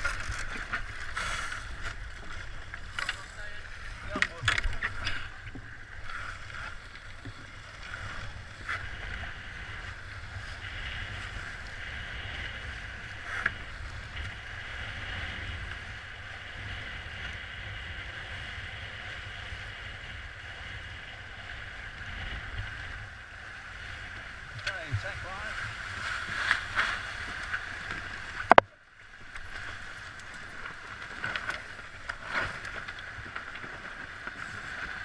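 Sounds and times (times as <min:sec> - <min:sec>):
water rushing along hulls: 0:00.0 - 0:35.0
wind noise on microphone: 0:07.2 - 0:28.7.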